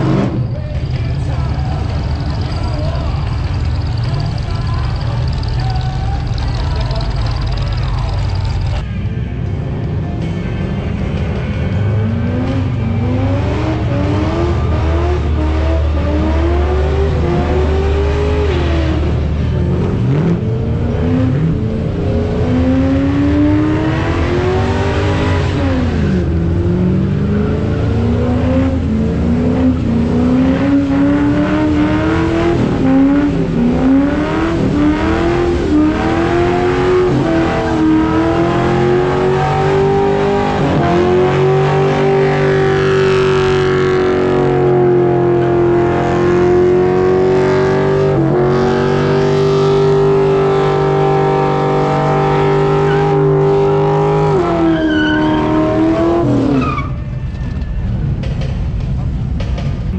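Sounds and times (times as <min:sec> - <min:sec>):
engine revving hard: 0:20.0 - 0:56.6.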